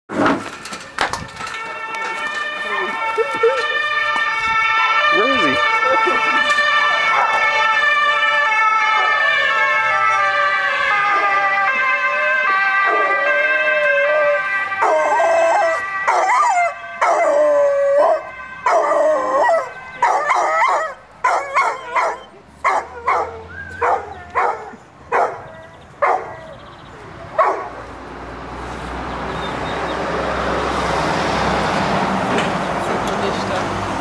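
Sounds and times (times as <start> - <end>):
dog howling and yelping: 12.9 - 26.6.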